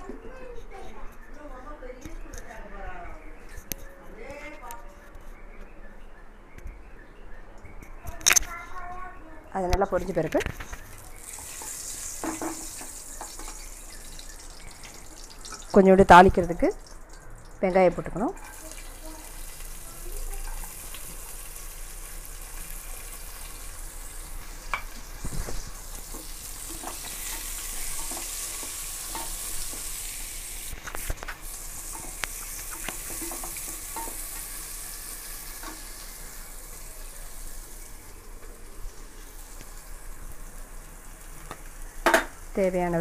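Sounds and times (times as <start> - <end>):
onions sizzling in hot oil: 10.9 - 43.0
wooden spatula tapping and scraping: 30.8 - 34.5.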